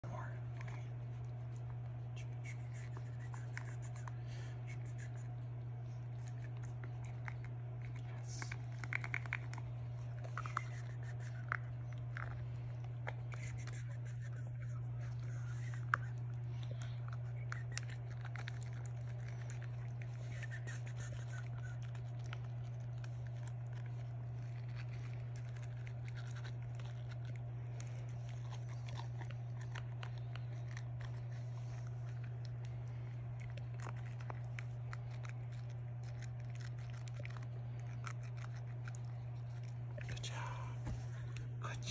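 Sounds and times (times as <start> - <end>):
low hum: 0.0 - 41.9
toothbrush scratching teeth: 2.2 - 16.4, 17.0 - 40.2.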